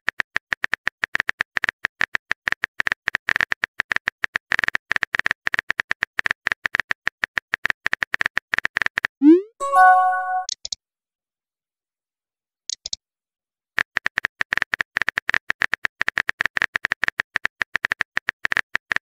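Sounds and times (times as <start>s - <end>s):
message chime: 9.2s - 10.5s
keyboard typing clicks: 9.2s - 10.6s.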